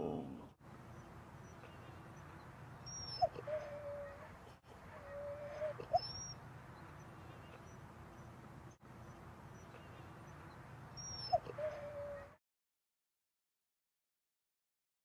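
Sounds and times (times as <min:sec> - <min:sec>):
dog whining: 0:02.9 - 0:04.3, 0:05.0 - 0:06.3, 0:11.0 - 0:12.4.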